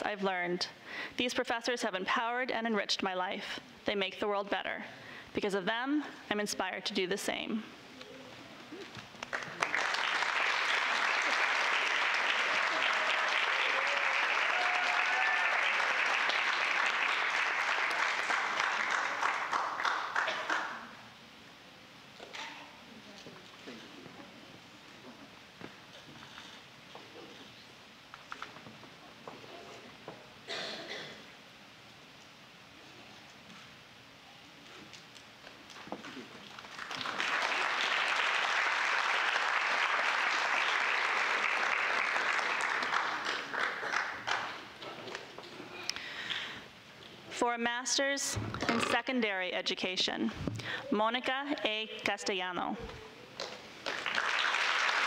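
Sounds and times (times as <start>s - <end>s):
audience applauding: 9.1s - 21.0s, 36.6s - 45.2s, 53.4s - 55.0s.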